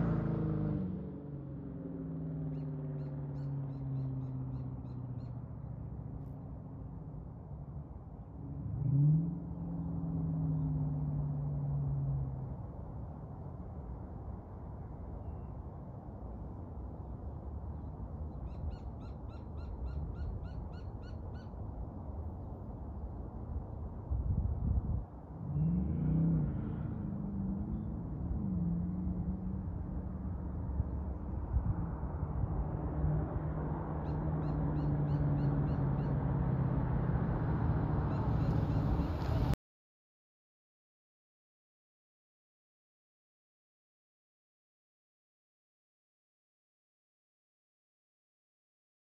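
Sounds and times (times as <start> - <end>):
bird chirps: 2.5 - 5.4, 18.4 - 21.5, 38.1 - 39.3.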